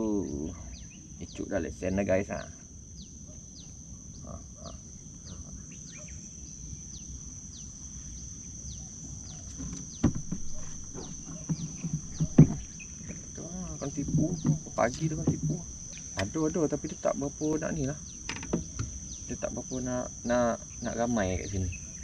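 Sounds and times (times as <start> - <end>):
insect drone: 0.0 - 22.0
sharp knocks: 9.5 - 16.4, 18.3 - 19.0.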